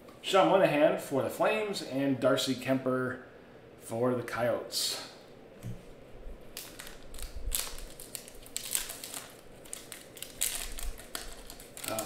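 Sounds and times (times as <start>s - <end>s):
foil wrapper tearing and crinkling: 6.5s - 12.0s.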